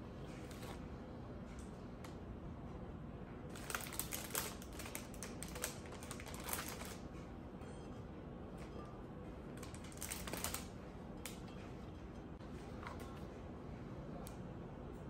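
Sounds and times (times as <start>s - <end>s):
plastic wrapping crinkling: 3.5s - 7.0s, 9.6s - 11.4s.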